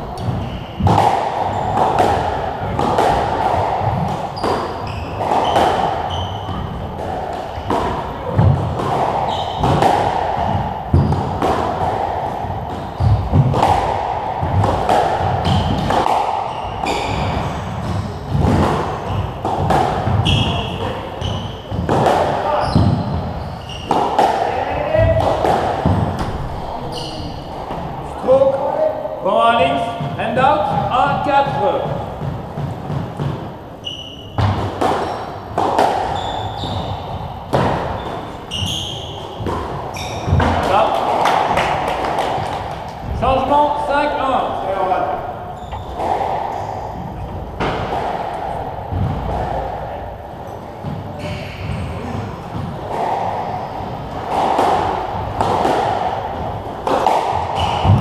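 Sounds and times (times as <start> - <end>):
squash ball hitting rackets and walls: 0.0 - 29.0, 29.6 - 58.0
shoes squeaking on wooden floor: 0.1 - 1.8, 3.9 - 8.6, 9.2 - 9.8, 10.4 - 11.4, 15.4 - 19.4, 20.1 - 24.2, 26.3 - 28.0, 32.6 - 35.3, 36.0 - 40.9, 44.3 - 47.7, 50.8 - 52.7.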